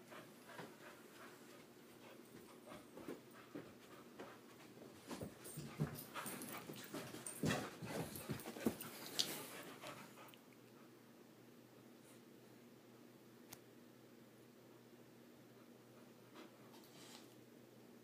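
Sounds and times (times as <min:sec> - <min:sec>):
puppy panting: 0:05.4 - 0:10.4.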